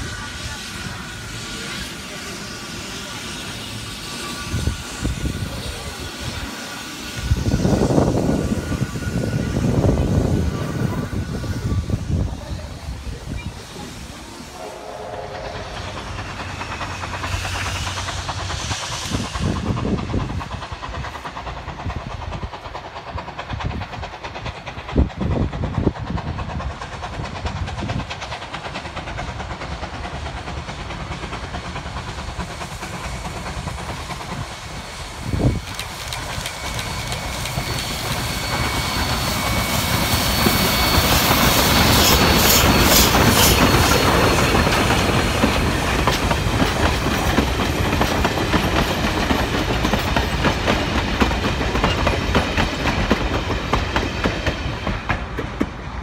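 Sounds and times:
steam hissing: 0.0 - 56.0
steam locomotive approaching: 0.0 - 56.0
wheels clicking over rail joints: 40.8 - 55.8.

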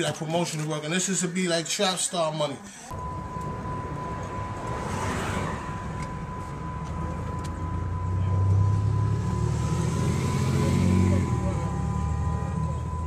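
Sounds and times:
thin steady high tone: 2.7 - 13.0.

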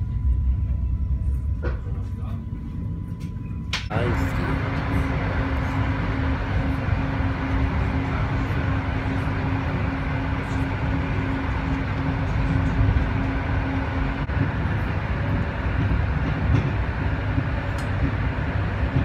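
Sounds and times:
low steady hum: 0.0 - 15.5
train wheels rumbling on rails: 0.0 - 19.0.

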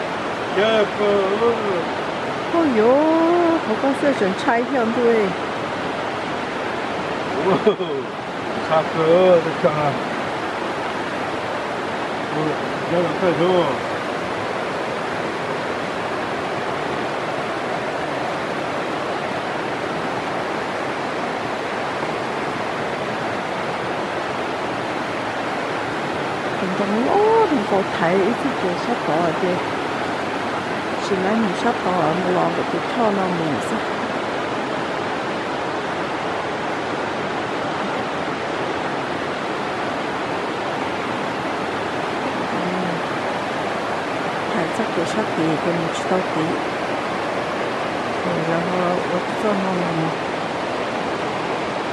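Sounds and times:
river water rushing over rocks: 0.0 - 51.9.

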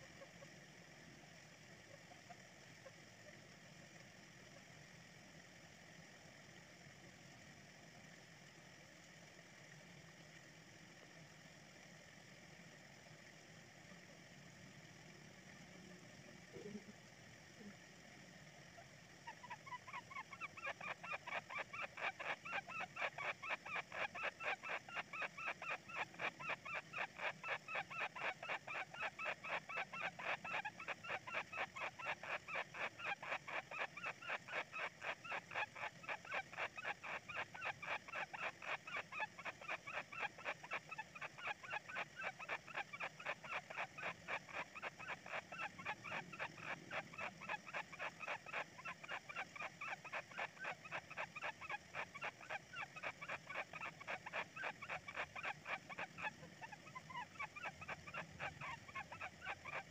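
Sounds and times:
nestlings calling: 19.3 - 59.9.

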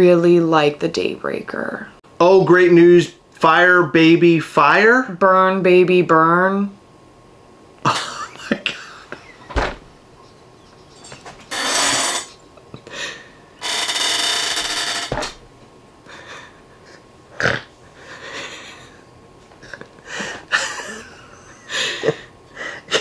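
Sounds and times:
man's stifled breathy laughter: 18.0 - 23.0.

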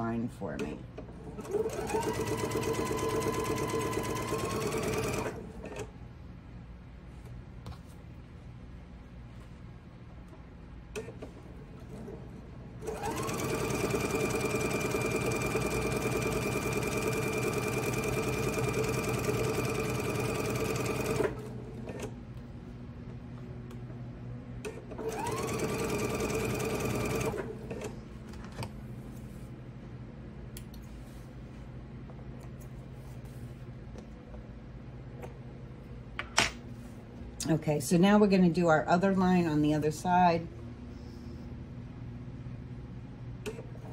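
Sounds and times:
sewing machine stitching: 1.2 - 5.9, 12.8 - 22.1, 24.7 - 27.9.

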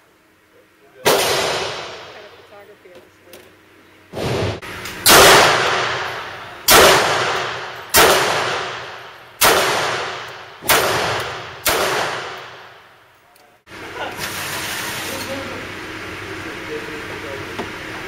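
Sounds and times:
pistol shots echoing indoors: 1.0 - 2.2, 5.0 - 12.8.

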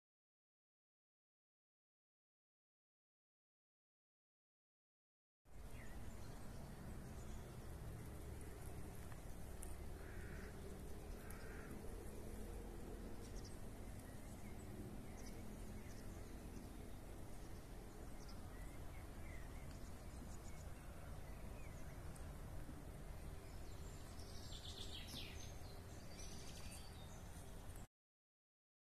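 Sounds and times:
low steady rumble: 5.5 - 27.9.

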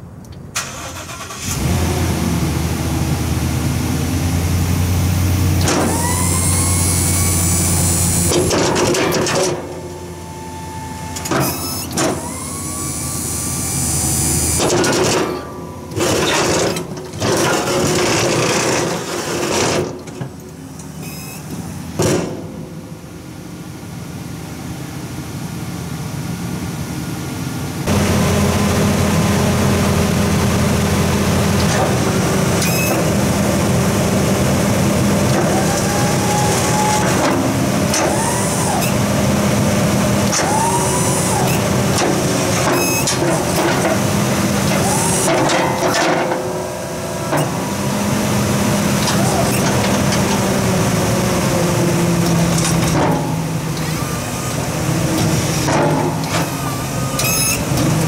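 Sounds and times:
truck engine running: 0.0 - 58.0
hydraulic pump running: 0.6 - 22.1, 27.9 - 58.0.

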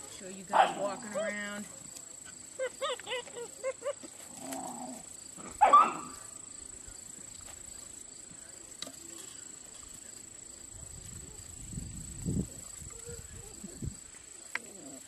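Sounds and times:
puppy barking: 0.5 - 1.0, 5.6 - 6.2
puppies yipping: 2.3 - 4.6.

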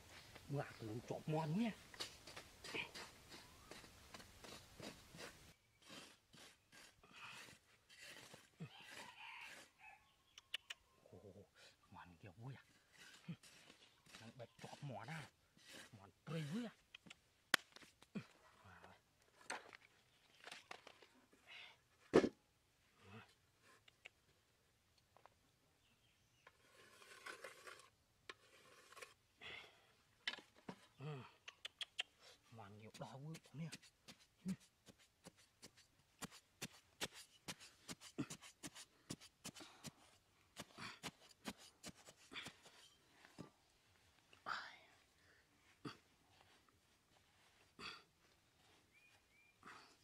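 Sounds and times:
hands scraping sandy soil: 0.0 - 9.8, 12.4 - 18.8, 26.4 - 29.2, 31.8 - 43.2.

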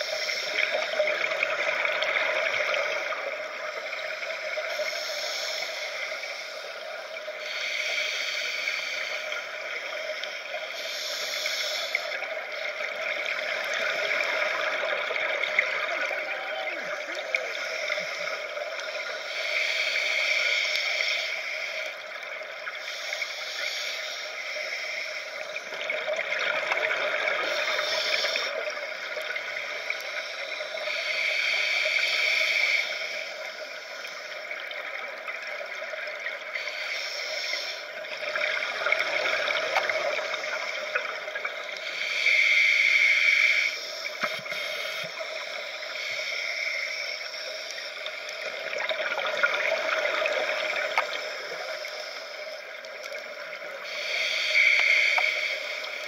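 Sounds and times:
diver breathing through regulator: 4.6 - 12.2, 36.4 - 48.8, 53.8 - 56.0.

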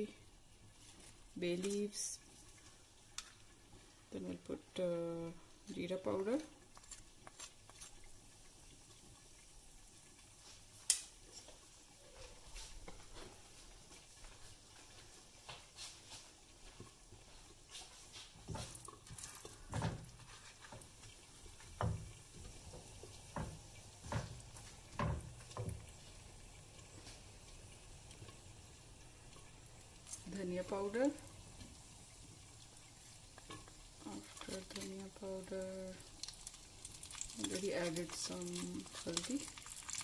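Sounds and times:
oil sizzling in a pan: 0.0 - 40.0
spatula scraping a pan: 18.5 - 21.1.

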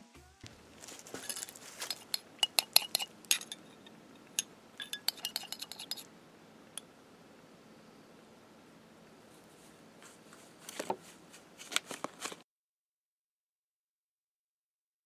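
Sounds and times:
drinking glass clinking: 1.1 - 6.1.

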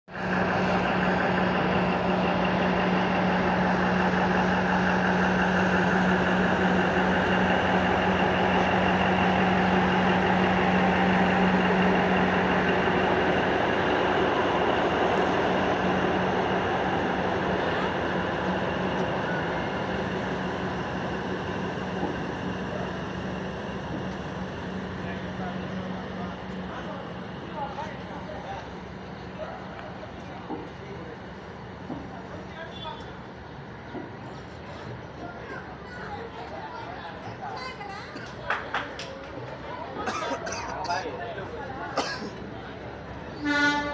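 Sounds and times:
train wheels clattering on rail: 0.3 - 25.0, 29.7 - 31.0, 31.7 - 32.5, 33.8 - 35.3.

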